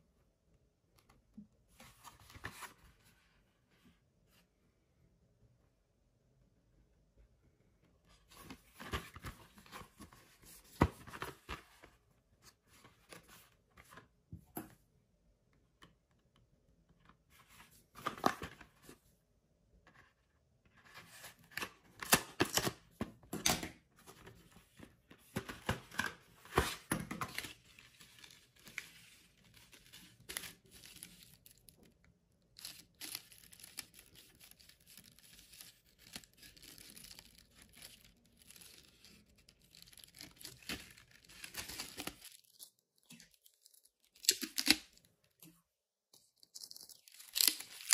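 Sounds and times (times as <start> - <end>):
cardboard packaging cut and torn: 46.6 - 47.9.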